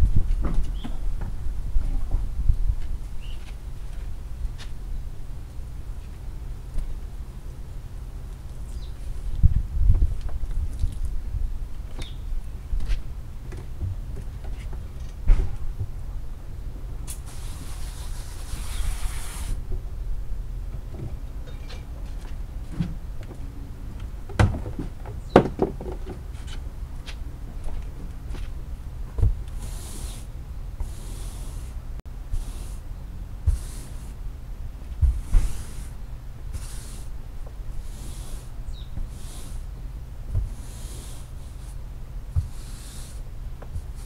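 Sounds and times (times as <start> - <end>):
low steady rumble: 0.0 - 44.0
flip-flop footsteps: 12.8 - 15.9, 24.0 - 29.4
stiff bristles scrubbing: 29.5 - 32.8, 33.5 - 34.2, 35.0 - 39.8, 40.4 - 44.0.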